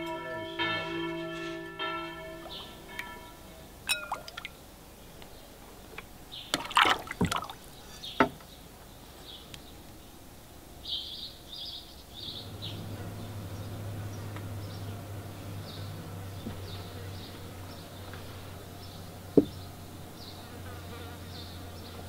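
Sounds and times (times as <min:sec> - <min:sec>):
birds chirping: 0:00.0 - 0:22.0
low steady hum: 0:00.0 - 0:22.0
glaze pouring and splashing: 0:03.9 - 0:04.6, 0:06.5 - 0:08.0.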